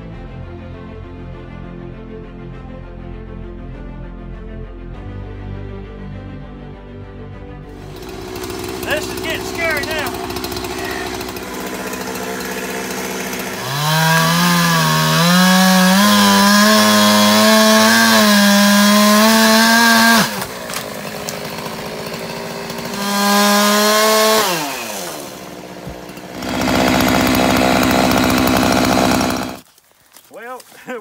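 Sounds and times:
chainsaw revving and cutting wood: 0:07.7 - 0:29.8.

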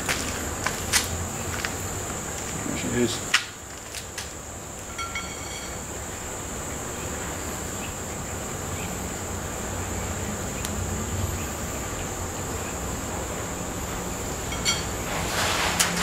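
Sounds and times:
high insect buzz: 0:00.0 - 0:16.0
metallic ring of taper seating: 0:04.9 - 0:05.9, 0:14.5 - 0:16.0.

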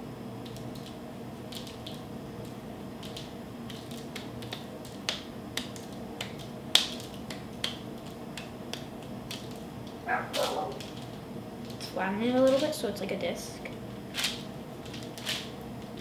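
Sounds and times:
steady low hum: 0:00.0 - 0:16.0
hands slapping dough: 0:01.5 - 0:11.0.

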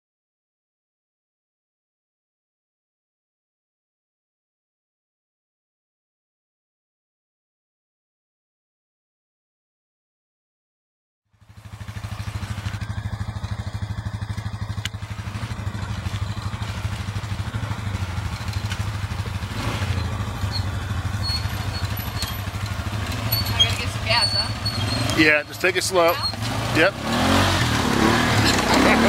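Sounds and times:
atv engines running: 0:11.4 - 0:29.0.

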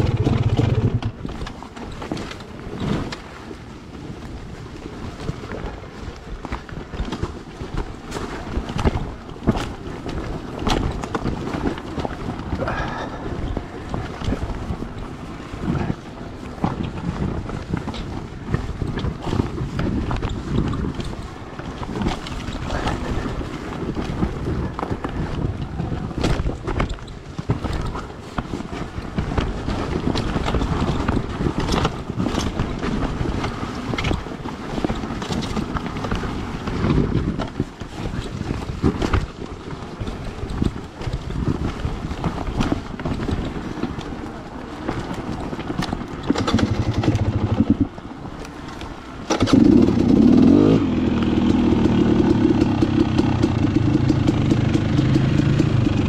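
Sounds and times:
dirt bike engine rumbling: 0:00.0 - 0:03.0, 0:09.8 - 0:26.9, 0:42.3 - 0:56.0
bike knocks and rattles: 0:00.0 - 0:56.0
wind buffeting on microphone: 0:00.0 - 0:56.0.

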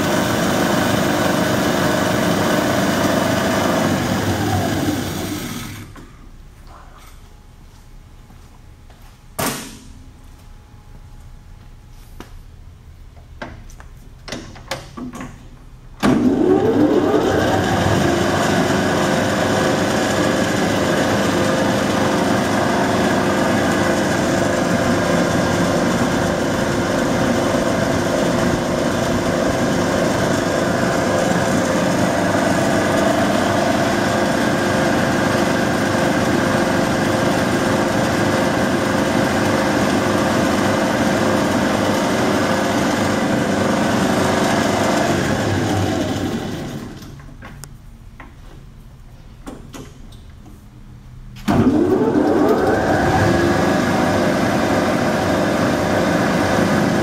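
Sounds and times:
lathe motor hum and whine: 0:00.0 - 0:05.9, 0:16.1 - 0:47.0, 0:51.5 - 0:57.0.

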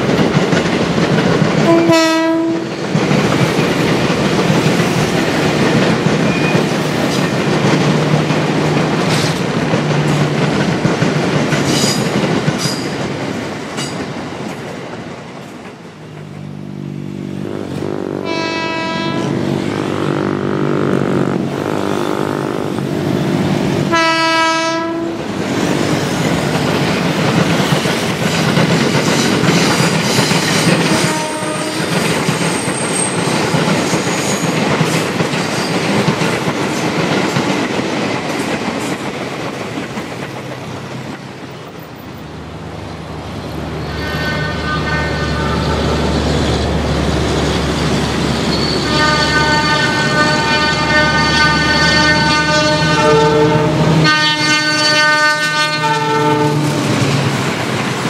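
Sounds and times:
diesel locomotive engine rumble: 0:00.0 - 0:58.0
electric train passing on rails: 0:00.0 - 0:58.0
train horn blasts: 0:01.6 - 0:02.7, 0:17.4 - 0:22.6, 0:23.9 - 0:25.3, 0:30.8 - 0:32.0, 0:43.9 - 0:46.1, 0:48.6 - 0:57.0.

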